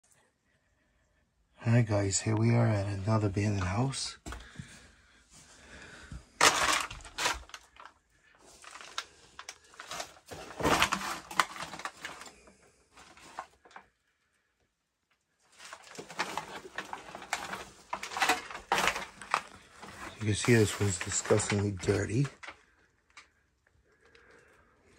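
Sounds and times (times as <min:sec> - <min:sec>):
debris crunching underfoot: 0:04.2 - 0:12.4, 0:15.6 - 0:22.7.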